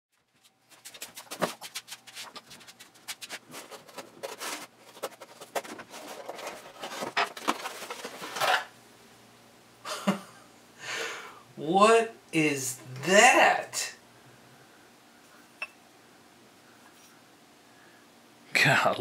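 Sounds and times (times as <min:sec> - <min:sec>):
cardboard crinkling and scratching: 0:00.2 - 0:08.7
cardboard tearing: 0:00.8 - 0:08.7.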